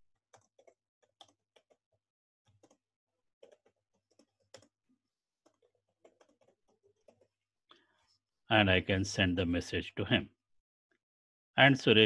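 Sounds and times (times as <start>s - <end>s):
typing on computer keyboard: 0.3s - 1.9s, 2.5s - 2.8s, 3.4s - 4.8s, 5.4s - 7.3s.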